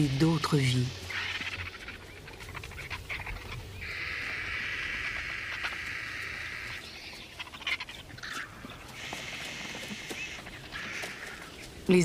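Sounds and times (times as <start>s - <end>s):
vulture hissing: 9.0s - 11.4s.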